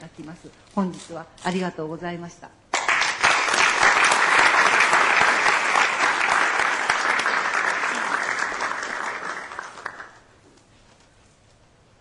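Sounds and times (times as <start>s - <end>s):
audience applauding: 2.8s - 10.3s.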